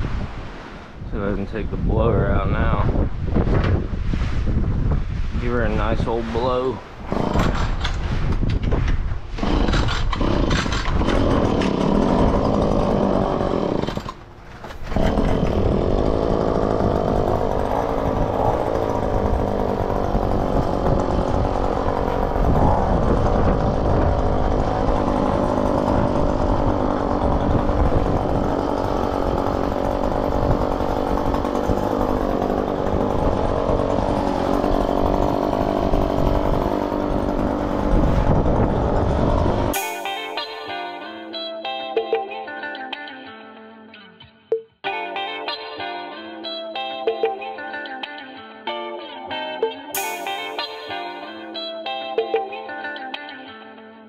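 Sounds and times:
leaf blower running: 7.0 - 7.9, 9.4 - 41.4, 50.0 - 51.7.

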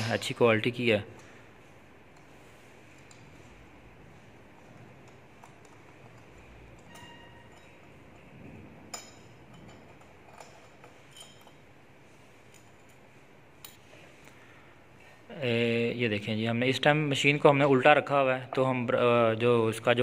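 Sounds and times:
metal clinks and clicks: 8.9 - 11.7.

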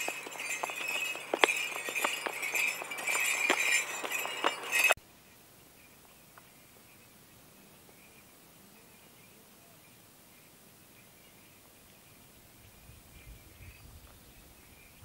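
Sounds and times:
horse hooves clopping on asphalt: 0.0 - 5.0
metal tack jingling: 0.0 - 5.0.

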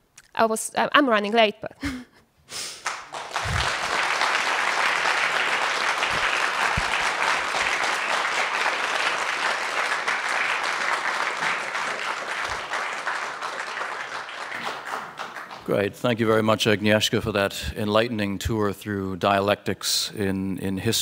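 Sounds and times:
audience applauding: 2.8 - 16.0.

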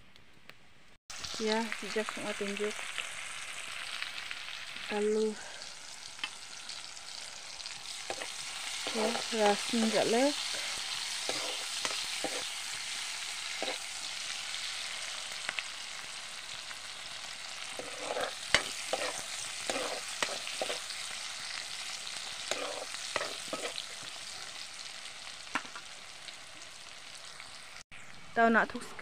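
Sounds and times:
onions sizzling in hot oil: 1.1 - 28.6
metal ladle scraping a pan: 6.6 - 13.9, 17.5 - 24.0.

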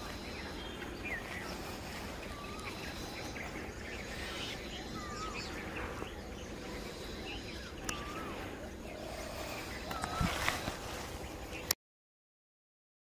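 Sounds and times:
high bird chirps: 0.0 - 11.8
outdoor hiss: 0.0 - 11.8.

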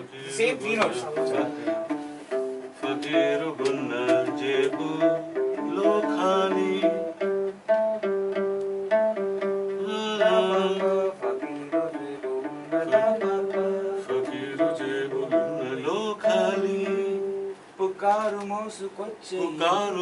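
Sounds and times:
acoustic guitar picking melody: 0.7 - 18.6
man singing: 2.8 - 7.2, 9.8 - 20.0.

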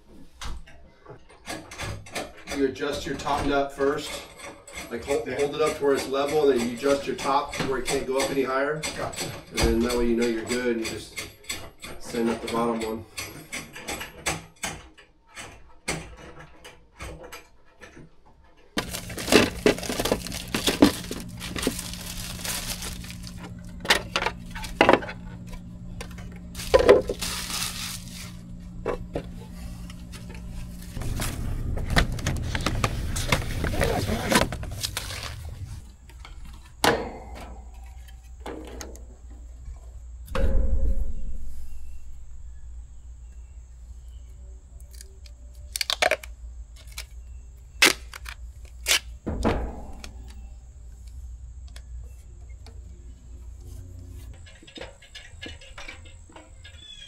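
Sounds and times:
hand tools clattering: 1.3 - 15.0, 18.8 - 39.0, 54.2 - 57.0
steady low hum: 18.8 - 57.0.

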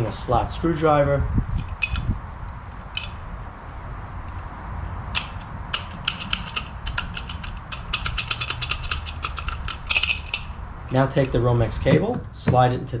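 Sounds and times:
sharp plastic clicks: 2.9 - 3.2, 5.1 - 12.1.

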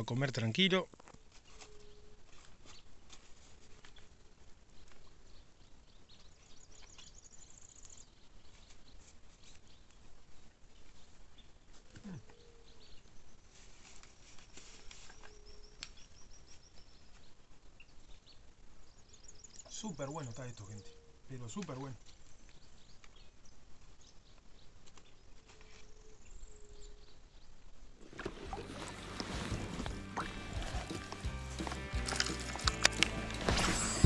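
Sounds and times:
small clicks and rustles: 0.9 - 5.5, 6.1 - 18.4, 24.0 - 26.2
birds chirping and trilling: 15.0 - 27.6, 28.4 - 34.0.

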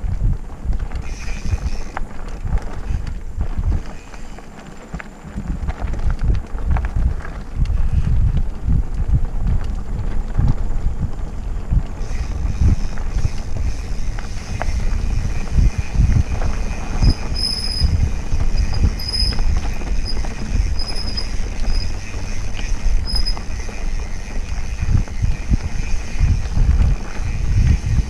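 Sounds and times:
bike tyres rumbling on dirt trail: 0.0 - 28.0
wind on microphone: 0.0 - 28.0
squeaky bike brakes: 1.0 - 5.3, 12.0 - 28.0.

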